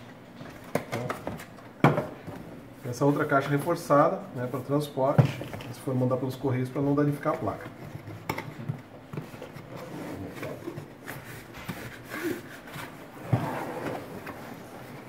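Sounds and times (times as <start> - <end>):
hands rubbing cardboard box: 9.8 - 13.8.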